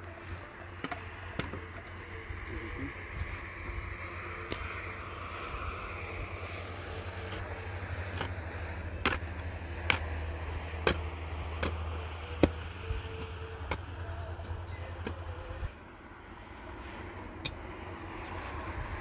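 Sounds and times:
pick striking stony soil: 7.2 - 15.3.

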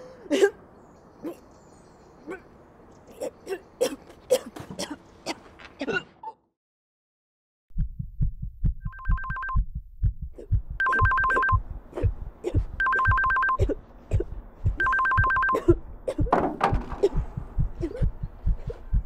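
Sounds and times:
quick low thumps: 7.7 - 19.0
phone ringing two-note trill: 10.8 - 11.6, 12.8 - 13.6, 14.8 - 15.6.

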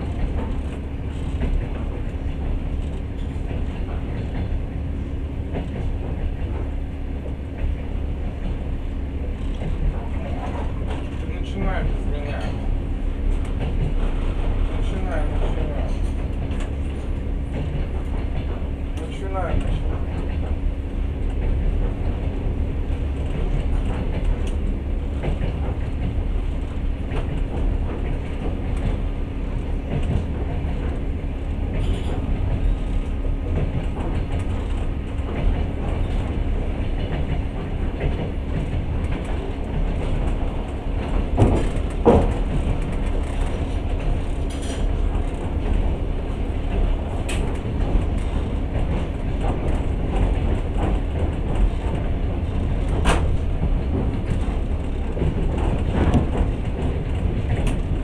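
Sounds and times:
train rumble inside carriage: 0.0 - 58.0
wheels clicking over rails: 0.0 - 58.0.

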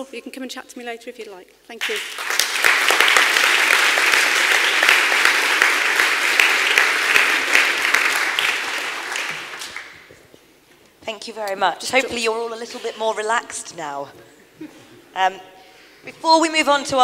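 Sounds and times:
audience applauding: 1.8 - 10.1.

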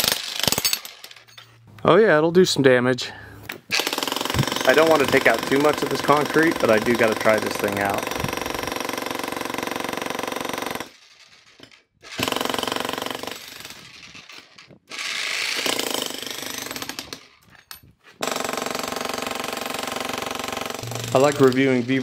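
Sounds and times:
jackhammer hammering concrete: 0.0 - 0.8, 3.7 - 10.9, 12.1 - 13.8, 14.9 - 17.2, 18.2 - 22.0.

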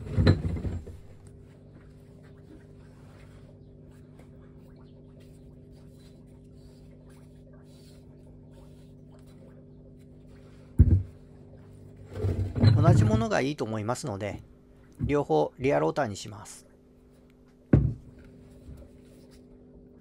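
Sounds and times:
steady low hum: 0.0 - 20.0
heavy thump on workbench: 10.8 - 11.2, 17.7 - 18.1.

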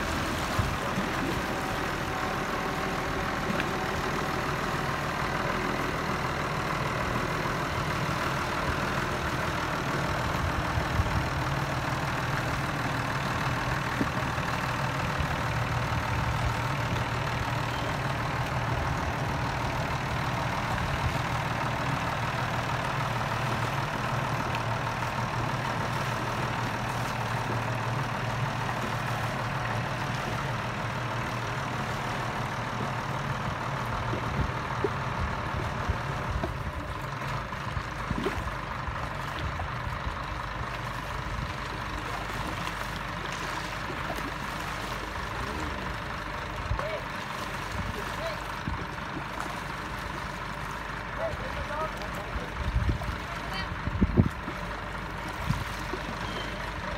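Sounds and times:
tractor engine running: 0.0 - 56.9.

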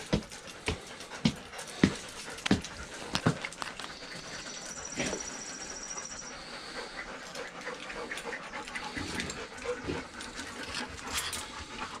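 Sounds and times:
small clicks and scuffs: 0.0 - 4.3
dogs panting: 0.0 - 12.0.

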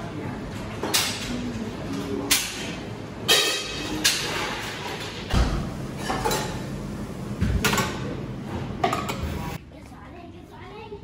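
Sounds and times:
noisy room background: 0.0 - 11.0
cups clinking and knocking: 8.8 - 9.3.

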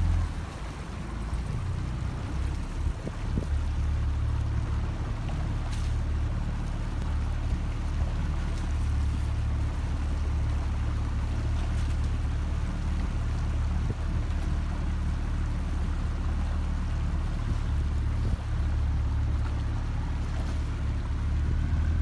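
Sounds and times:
motorboat engine humming: 0.0 - 22.0
water noise: 0.0 - 22.0
wind noise: 2.7 - 3.8, 17.4 - 18.7.

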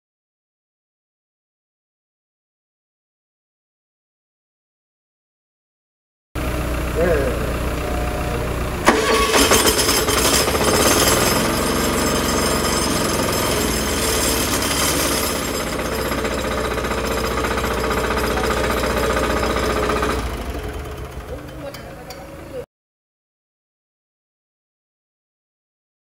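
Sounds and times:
diesel engine running: 6.4 - 22.6.

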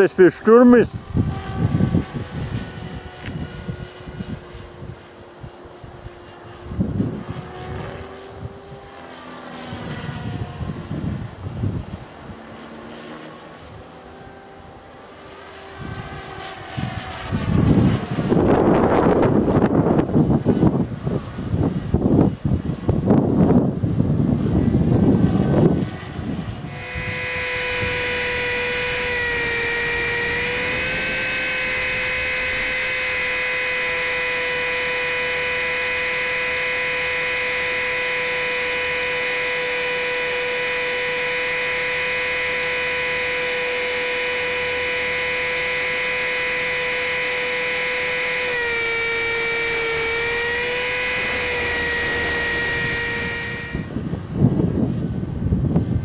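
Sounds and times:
helicopter motor whining: 0.0 - 55.0
wind buffeting microphone: 0.8 - 5.1, 5.8 - 9.0, 9.7 - 12.4, 15.8 - 35.5, 48.8 - 56.0.

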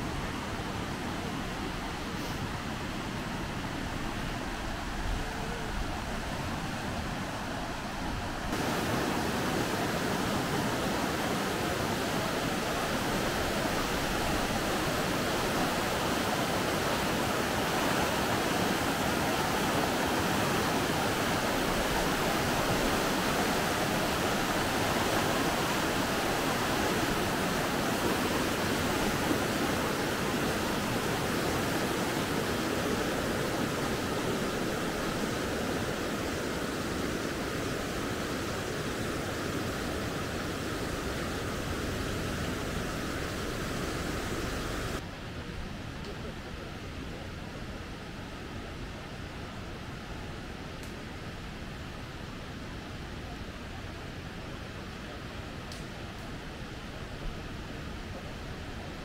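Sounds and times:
river rushing over stones: 0.0 - 45.8.

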